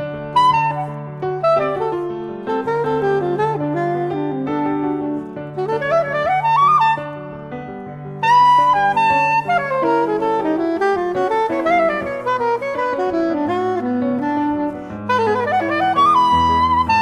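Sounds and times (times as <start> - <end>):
piano chords: 0.0 - 17.0
soprano saxophone jazz solo: 0.0 - 17.0.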